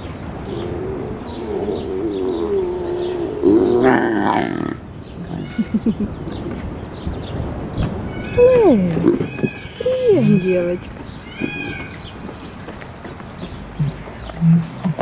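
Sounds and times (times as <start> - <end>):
lions calling: 0.3 - 6.5, 8.1 - 12.0
lion low grunts: 0.5 - 5.8, 13.8 - 15.0.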